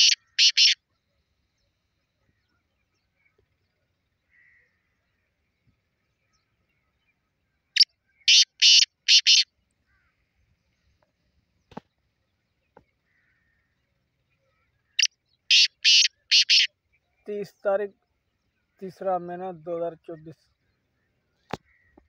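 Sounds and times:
bird harsh grating calls: 0.0s - 0.8s, 8.2s - 10.1s, 14.9s - 16.7s.

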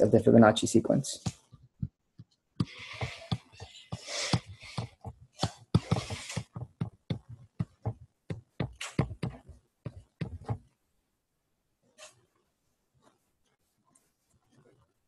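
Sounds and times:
stylus tapping and scratching: 1.2s - 10.8s.

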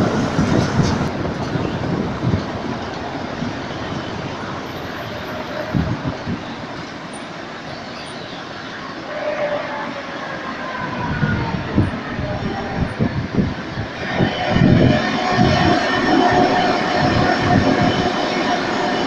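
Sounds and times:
electric tram approaching with whine: 0.0s - 19.0s.

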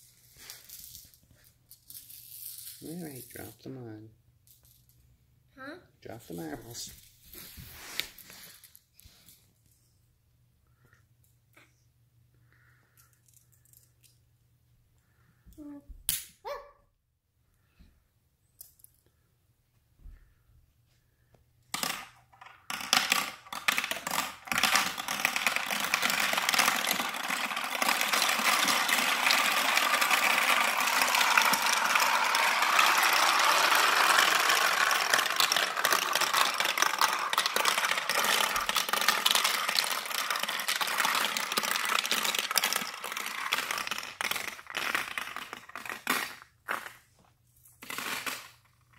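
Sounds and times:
steel marbles rattling down plastic: 21.7s - 47.0s, 47.8s - 48.9s.

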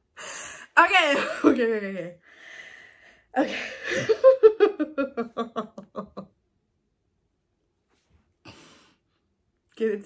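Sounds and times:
woman laughing: 3.4s - 6.3s.

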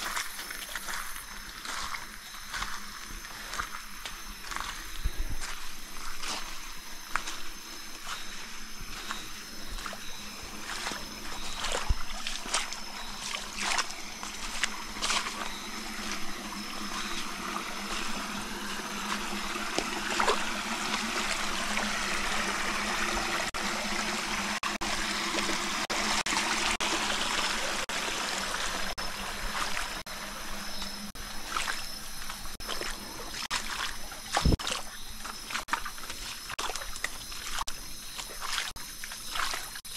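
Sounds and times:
creek water trickling: 0.0s - 39.9s
short splashes and knocks: 8.9s - 17.3s, 17.9s - 20.5s, 31.4s - 39.8s.

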